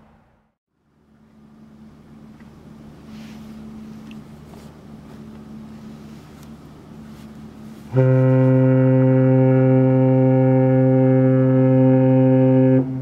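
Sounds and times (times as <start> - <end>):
low steady hum: 0.0 - 13.0
ship horn blast: 7.5 - 13.0.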